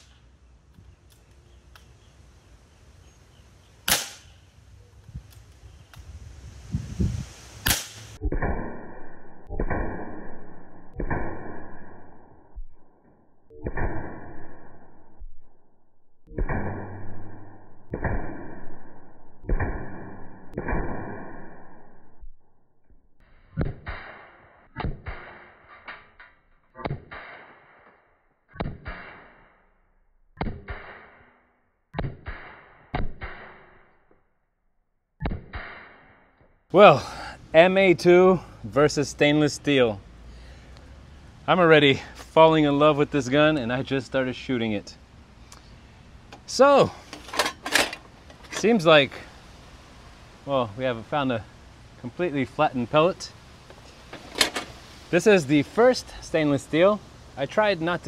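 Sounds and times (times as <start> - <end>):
air rifle shots: 0.0 - 0.2, 3.8 - 4.4, 7.6 - 8.8
air rifle pellet hitting metal: 3.9 - 4.4
metal trays ringing: 47.1 - 48.7.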